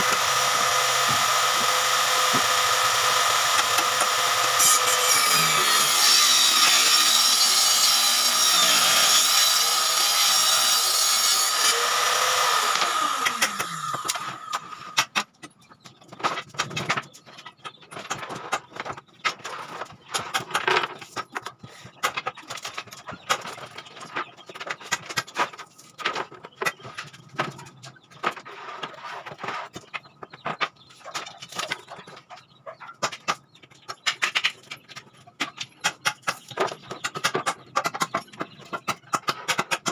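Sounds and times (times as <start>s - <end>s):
table saw whining: 0.0s - 15.0s.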